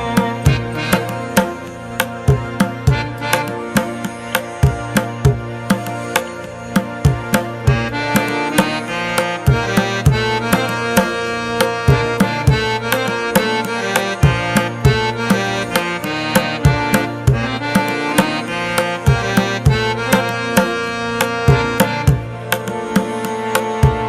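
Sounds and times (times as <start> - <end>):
hand drum beat: 0.0 - 24.0
sustained melodic tones: 0.0 - 24.0.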